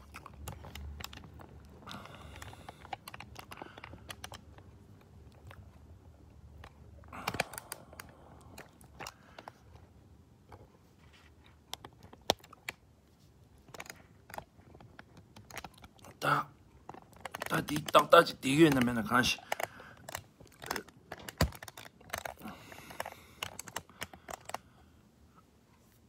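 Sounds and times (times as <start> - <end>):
faint clicks and taps: 0.0 - 26.0.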